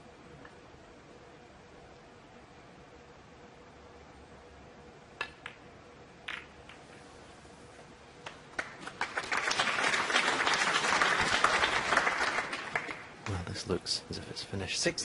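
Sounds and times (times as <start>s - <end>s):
snooker balls clicking: 5.2s - 7.1s
audience applause: 8.6s - 13.4s.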